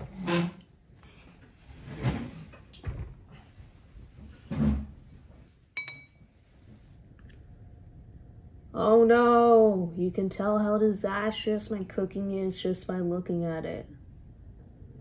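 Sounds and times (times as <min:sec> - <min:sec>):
spoon clinking on dish: 0:05.8 - 0:06.2.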